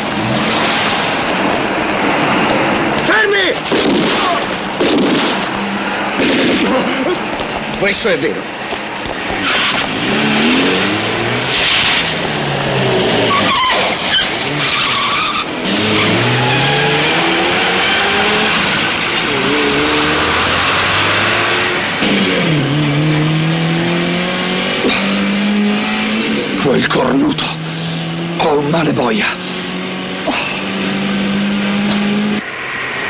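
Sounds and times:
car engine revving: 0:00.0 - 0:33.0
tyres squealing: 0:08.8 - 0:10.0, 0:13.0 - 0:19.5.

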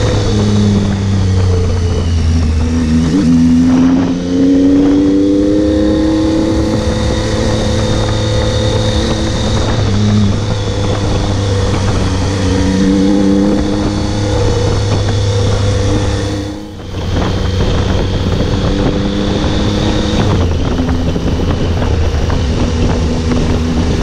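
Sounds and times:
motorcycle engine pulling: 0:00.0 - 0:24.0
wind noise: 0:00.0 - 0:24.0.

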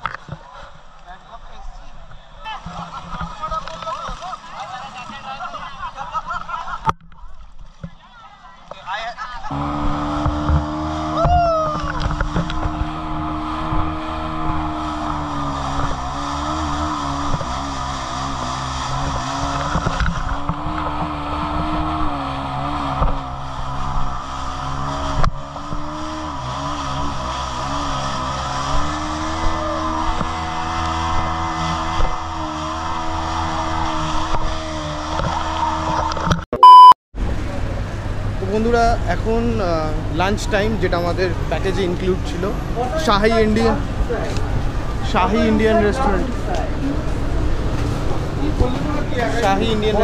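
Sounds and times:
water rushing and spraying: 0:09.5 - 0:31.5
jet ski engine running: 0:09.5 - 0:42.6.

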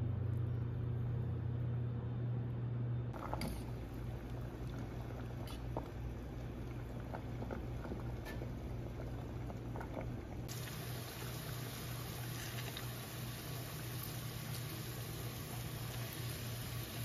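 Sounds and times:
steady low hum: 0:00.0 - 0:17.0
water boiling in pot: 0:03.2 - 0:17.0
vegetables sizzling in oil: 0:10.5 - 0:17.0.

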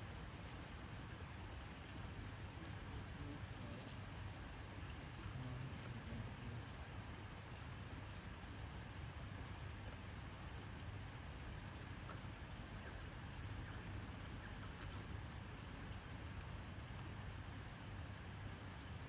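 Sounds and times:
outdoor background noise: 0:00.0 - 0:19.0
small bird chirping: 0:07.9 - 0:17.1.

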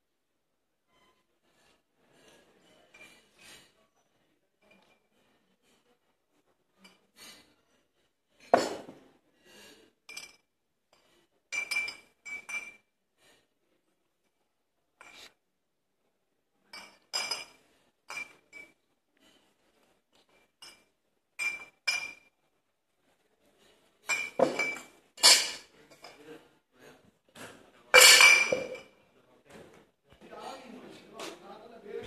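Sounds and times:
bottles and metal tins clinking: 0:08.4 - 0:09.0, 0:10.1 - 0:10.4, 0:11.0 - 0:12.8, 0:16.7 - 0:18.7, 0:20.2 - 0:22.3, 0:24.0 - 0:26.2, 0:27.9 - 0:29.0.

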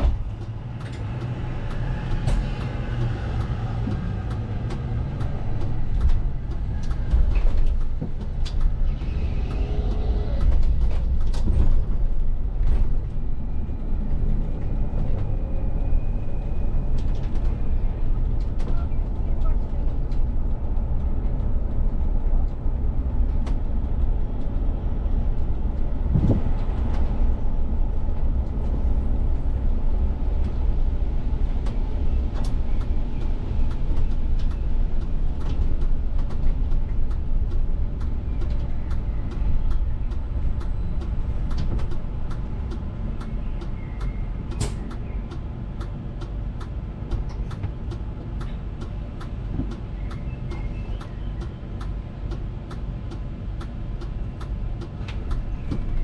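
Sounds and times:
bus drivetrain and road rumble: 0:00.0 - 0:56.0
turn indicator ticking: 0:35.8 - 0:55.4.

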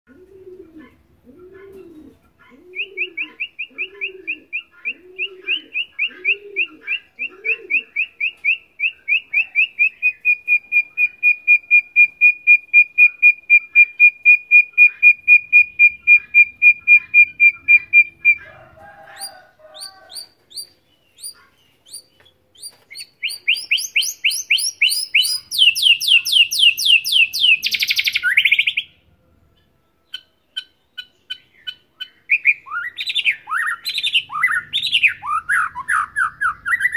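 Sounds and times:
dove cooing: 0:00.1 - 0:24.6
bird singing repeated notes: 0:00.8 - 0:36.9
bird trill with downward sweep: 0:02.8 - 0:18.6, 0:19.2 - 0:29.0, 0:31.3 - 0:36.9.

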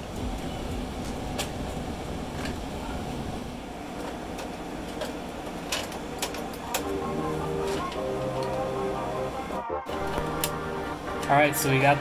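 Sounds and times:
circuit breakers clicking: 0:04.0 - 0:11.5.

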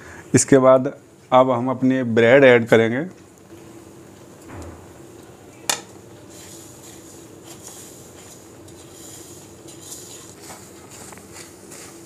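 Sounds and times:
bread crumbs sliding into milk: 0:06.2 - 0:12.0.

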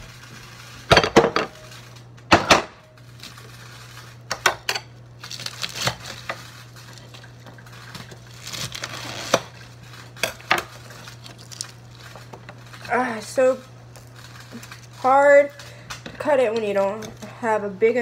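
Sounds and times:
lettuce crunching: 0:05.2 - 0:15.9.

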